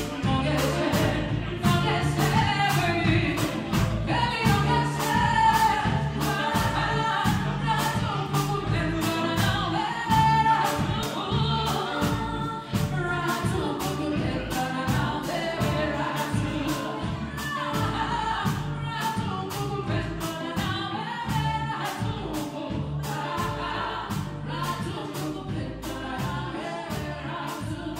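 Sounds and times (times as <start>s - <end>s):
drum kit steady beat: 0.0s - 27.9s
live band playing: 0.0s - 27.9s.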